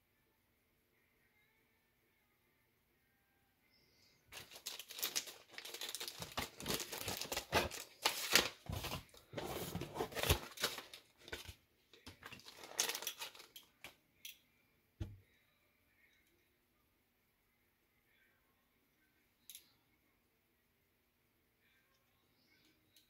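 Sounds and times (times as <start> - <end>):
paper and plastic rustling: 4.3 - 13.9.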